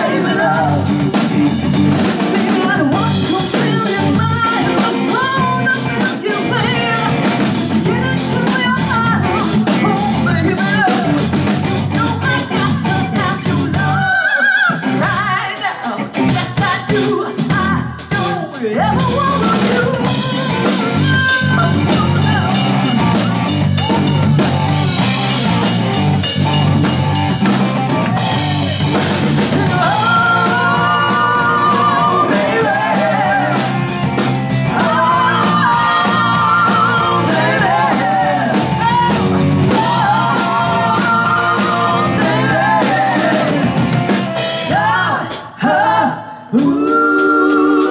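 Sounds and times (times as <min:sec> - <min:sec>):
live rock band playing: 0:00.0 - 0:45.7
woman singing: 0:02.0 - 0:22.6, 0:29.5 - 0:33.8, 0:34.7 - 0:43.7.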